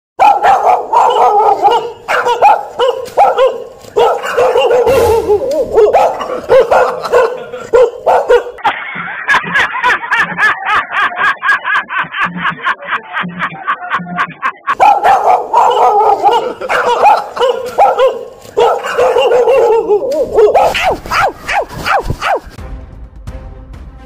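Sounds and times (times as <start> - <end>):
person imitating dog barking: 0.2 - 8.6, 14.7 - 22.5
music with steady beat: 4.9 - 5.9.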